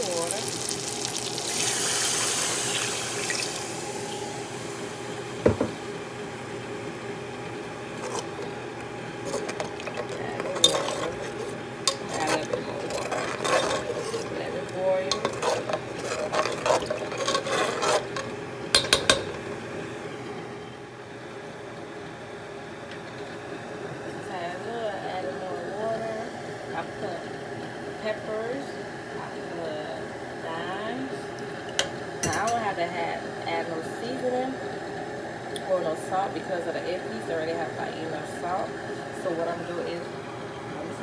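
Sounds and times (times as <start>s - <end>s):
sizzling hiss: 0.0s - 5.2s
metal spoon scraping a pot: 8.0s - 8.5s, 9.2s - 19.3s.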